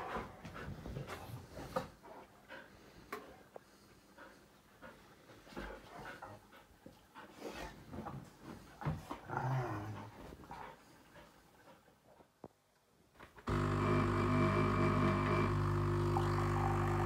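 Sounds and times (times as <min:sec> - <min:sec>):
dog low vocal sound: 0:09.1 - 0:10.7.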